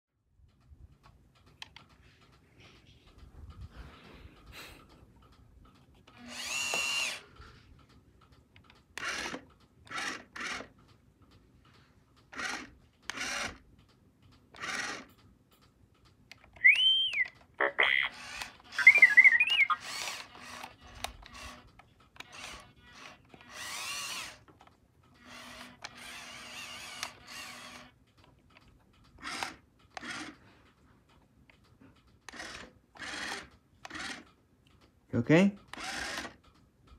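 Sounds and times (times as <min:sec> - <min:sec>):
toy motors whirring: 0:06.0 - 0:07.6, 0:08.6 - 0:10.8, 0:12.2 - 0:13.6, 0:14.5 - 0:15.2, 0:16.3 - 0:28.0, 0:29.0 - 0:30.4, 0:32.2 - 0:34.4, 0:35.6 - 0:36.6
electronic whistle: 0:16.6 - 0:17.4, 0:18.8 - 0:19.8
warbling beeps: 0:16.6 - 0:18.1, 0:18.8 - 0:19.9.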